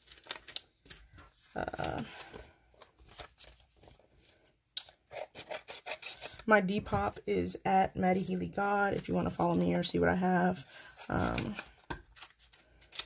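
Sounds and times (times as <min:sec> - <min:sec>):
paper rustling and crinkling: 0:00.0 - 0:05.0, 0:10.5 - 0:13.0
scissors snipping paper: 0:04.8 - 0:06.5, 0:11.1 - 0:13.0.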